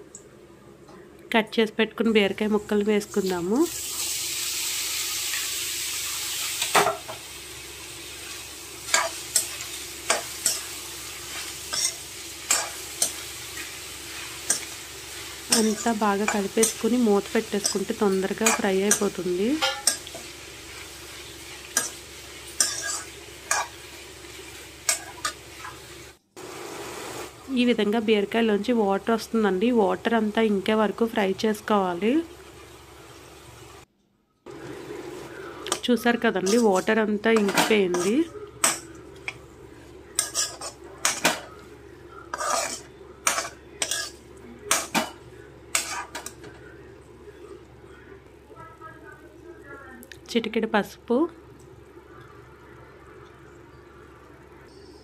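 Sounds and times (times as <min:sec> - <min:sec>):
low sizzle of oil: 0:00.0 - 0:55.0
spatula scraping a pan: 0:08.9 - 0:13.2, 0:21.6 - 0:23.8, 0:36.4 - 0:38.8, 0:40.2 - 0:41.5, 0:42.3 - 0:45.0, 0:45.7 - 0:46.3.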